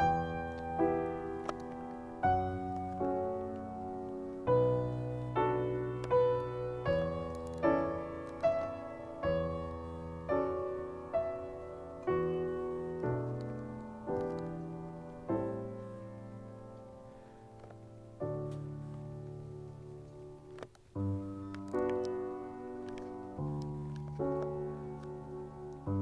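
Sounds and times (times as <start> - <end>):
slow piano notes and chords: 0.0 - 26.0.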